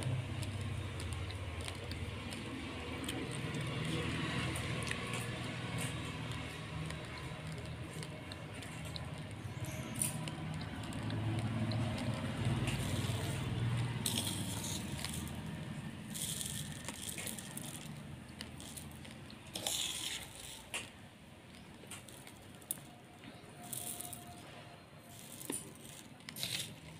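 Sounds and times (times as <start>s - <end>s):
rice scraping on metal plate: 12.0s - 21.0s, 25.1s - 26.9s.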